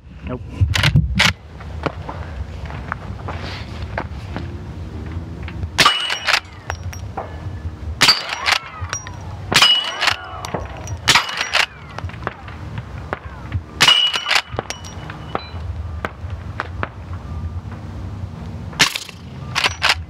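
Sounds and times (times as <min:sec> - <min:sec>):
bullets ringing on steel plates: 0:05.8 - 0:07.1, 0:08.0 - 0:11.9, 0:13.8 - 0:15.7.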